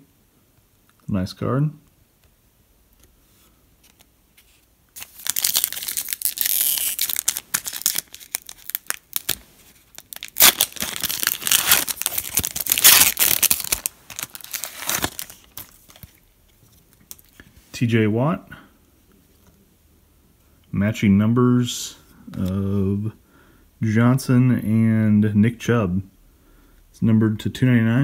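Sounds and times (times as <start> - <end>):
foil wrapper crackling and ripping: 5.0 - 16.2.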